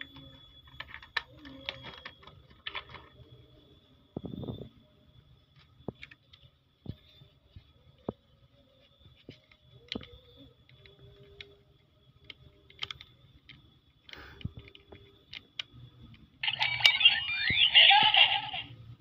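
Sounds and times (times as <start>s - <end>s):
toy electronic sound effect: 16.4s - 18.9s.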